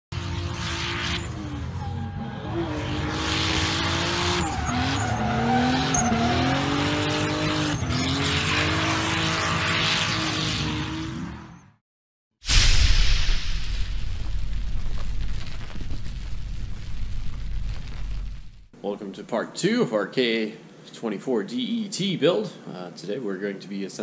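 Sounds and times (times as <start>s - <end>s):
car engine revving: 0.1s - 11.6s
tyres squealing and skidding: 1.1s - 11.6s.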